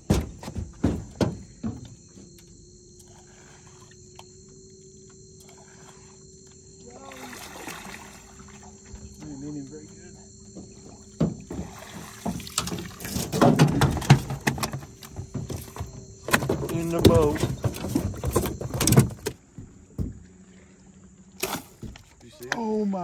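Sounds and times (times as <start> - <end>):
faint steady hum: 0.0 - 23.0
loud knocking and splashing: 10.6 - 18.2.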